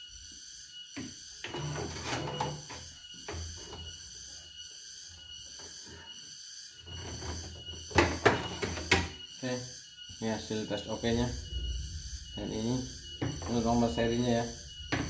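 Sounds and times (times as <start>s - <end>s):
faint steady hum: 10.2s - 15.0s.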